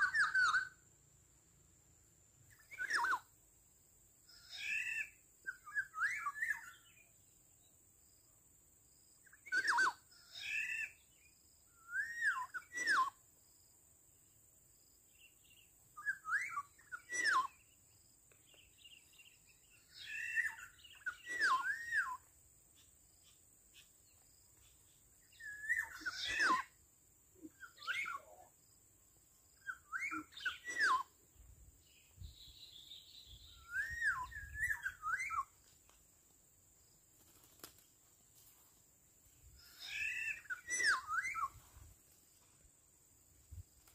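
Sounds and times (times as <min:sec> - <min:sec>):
bird whistling calls: 0:00.0 - 0:00.8, 0:02.5 - 0:03.3, 0:04.4 - 0:07.0, 0:09.3 - 0:11.0, 0:11.8 - 0:13.2, 0:16.0 - 0:17.6, 0:18.9 - 0:22.2, 0:25.3 - 0:26.8, 0:27.4 - 0:28.4, 0:29.6 - 0:31.1, 0:32.2 - 0:35.6, 0:39.7 - 0:41.6.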